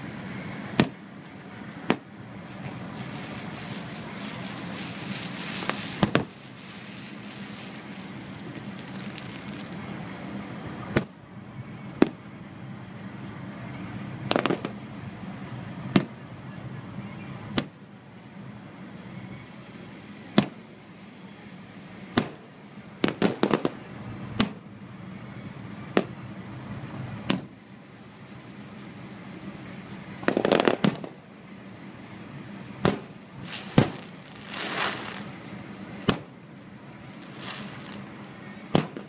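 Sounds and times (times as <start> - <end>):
steady background hum: 0.0 - 39.0
firework shells bursting: 0.6 - 11.2, 14.2 - 14.9, 22.1 - 24.7, 25.9 - 26.3, 30.2 - 31.2, 32.8 - 39.0.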